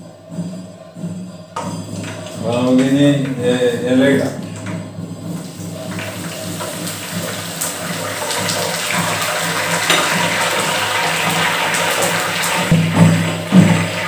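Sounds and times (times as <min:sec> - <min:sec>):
leaves sizzling in hot oil: 0:05.0 - 0:14.0.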